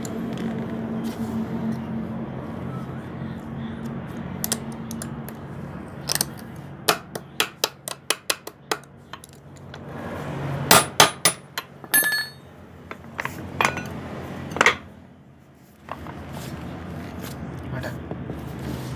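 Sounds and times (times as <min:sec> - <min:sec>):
hammer striking metal: 0:10.7 - 0:12.4.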